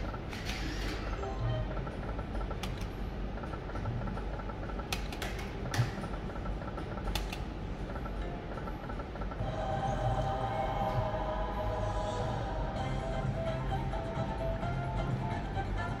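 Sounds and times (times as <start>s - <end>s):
slot machine hum: 0.0s - 4.9s, 5.5s - 16.0s.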